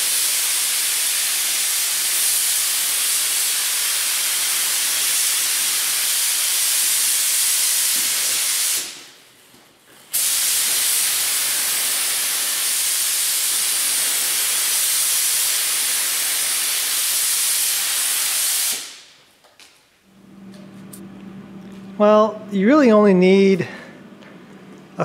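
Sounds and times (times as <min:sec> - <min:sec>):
spray gun air hiss: 0:00.0 - 0:09.2, 0:10.1 - 0:19.1.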